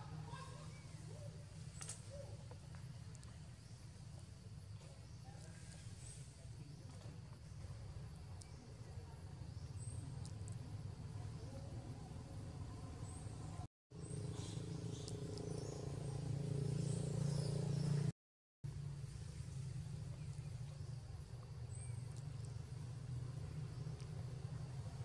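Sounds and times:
faint high bird chirps: 0:00.0 - 0:04.0, 0:04.8 - 0:18.1.

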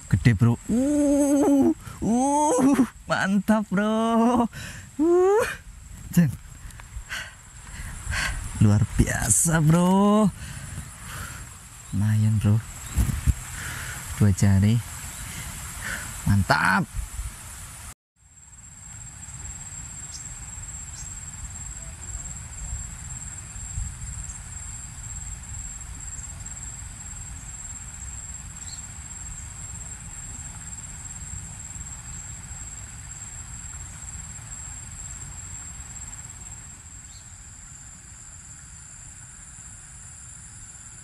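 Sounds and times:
high-pitched insect chorus: 0:00.0 - 0:41.0
faint ticks: 0:06.3 - 0:06.9.

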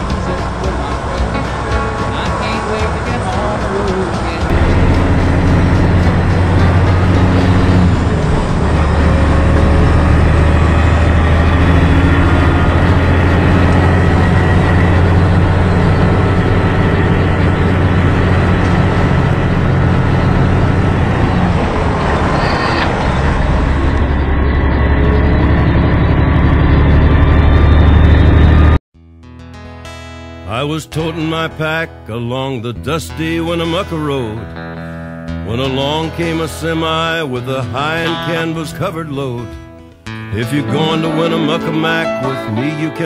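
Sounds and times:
road noise: 0:00.0 - 0:28.8
truck diesel engine drone: 0:00.0 - 0:28.8, 0:30.5 - 0:43.0.

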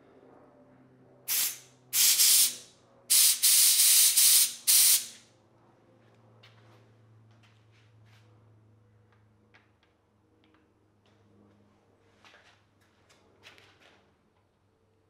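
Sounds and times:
air blow gun blasts: 0:01.3 - 0:05.2.

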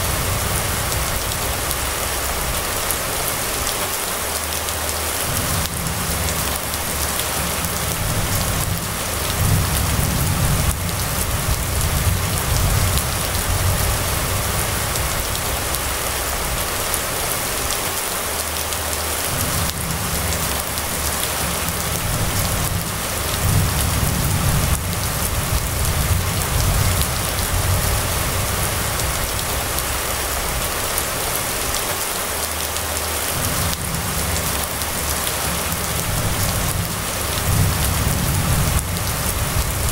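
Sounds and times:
rain on wet road: 0:00.0 - 0:39.9
low rumble: 0:05.2 - 0:17.1, 0:19.3 - 0:31.2.

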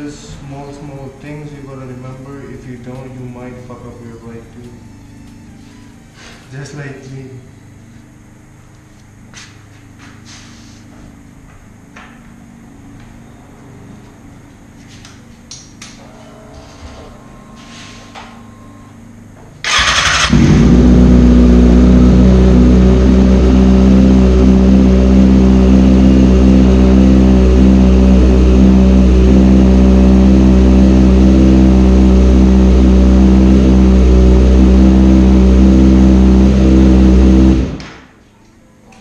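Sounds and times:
engine starter cranking: 0:19.6 - 0:20.7
motorcycle engine idling: 0:19.6 - 0:37.8.

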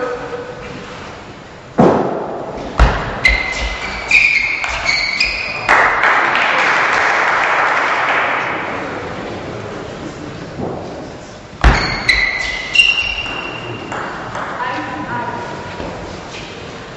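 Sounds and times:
heavy thuds: 0:01.8 - 0:04.9, 0:10.5 - 0:13.4
crowd applause: 0:05.7 - 0:09.2.

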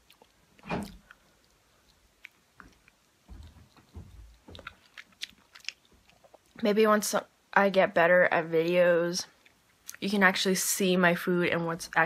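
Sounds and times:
person chewing: 0:00.0 - 0:06.6
wet mouth clicks and smacks: 0:00.0 - 0:06.6.

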